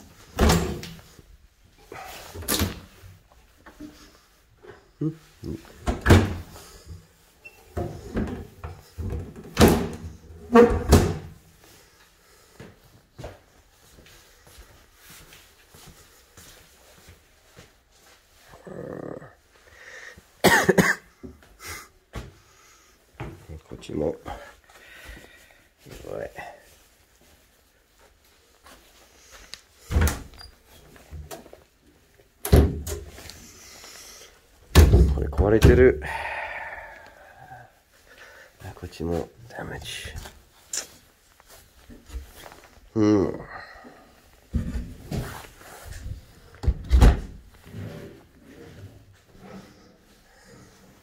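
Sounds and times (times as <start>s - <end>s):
wooden doors opening and shutting: 0.2s - 1.1s, 2.1s - 3.0s, 5.7s - 11.4s, 29.8s - 31.5s, 32.4s - 33.3s, 34.7s - 35.9s, 45.9s - 48.1s.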